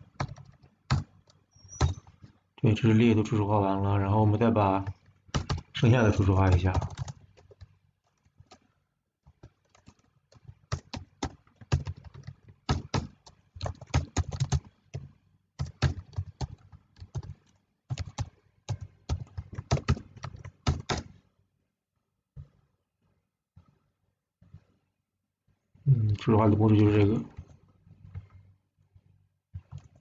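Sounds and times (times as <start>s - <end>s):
computer keyboard typing: 0.0s - 2.3s, 4.9s - 8.7s, 9.3s - 21.1s, 29.6s - 30.0s.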